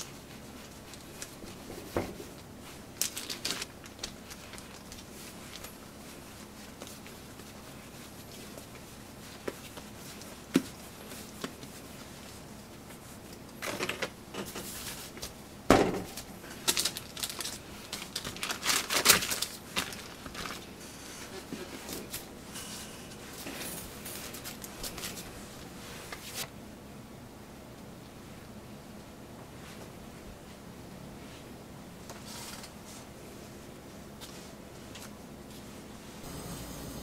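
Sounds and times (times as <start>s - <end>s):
baking paper crinkling: 0.0s - 15.4s, 16.1s - 26.5s.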